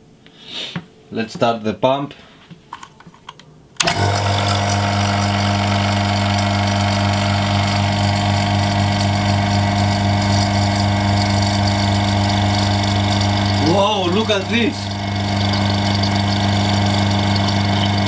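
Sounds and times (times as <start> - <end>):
vacuum pump humming: 3.8 - 18.0.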